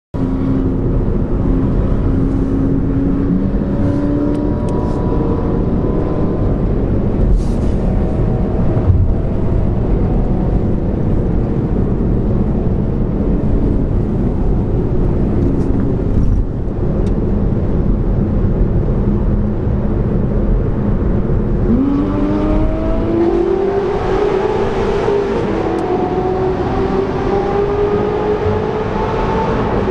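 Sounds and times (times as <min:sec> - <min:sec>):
road and engine noise: 0:00.1 - 0:29.9
engine revving: 0:21.6 - 0:29.9.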